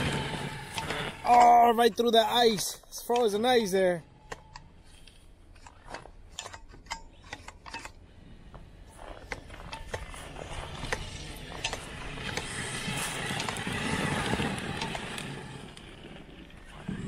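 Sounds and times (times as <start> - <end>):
electric motor whirring: 0.0 - 1.4, 9.9 - 17.0.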